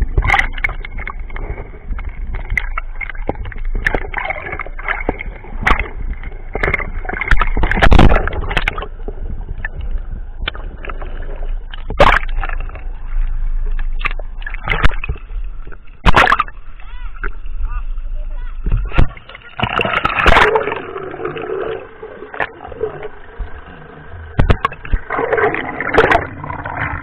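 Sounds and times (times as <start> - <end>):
water splash: 0.0 - 9.0, 10.4 - 17.4, 18.6 - 27.0
low rumble: 0.0 - 19.3, 20.0 - 27.0
underwater sloshing and gurgling: 0.0 - 27.0
knocks and clicks: 24.4 - 25.1.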